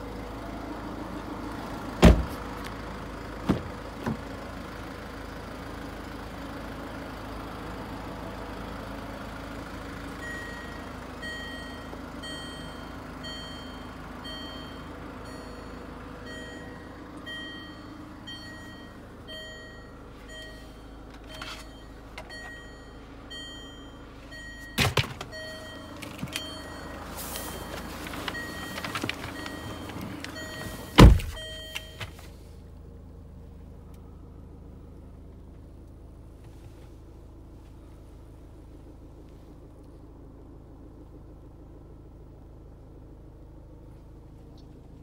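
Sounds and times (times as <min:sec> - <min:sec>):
loud thump: 0:02.0 - 0:02.4, 0:31.0 - 0:31.4
low cabin hum: 0:09.9 - 0:45.0
car warning chime beeping: 0:10.2 - 0:32.4.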